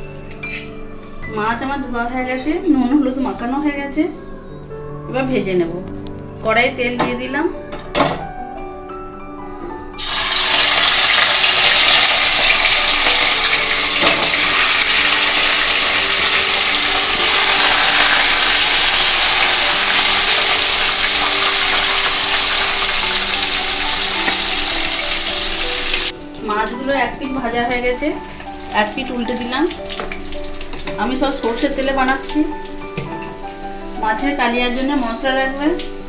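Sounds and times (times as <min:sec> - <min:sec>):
fish sizzling in hot oil: 0:10.0 - 0:36.0.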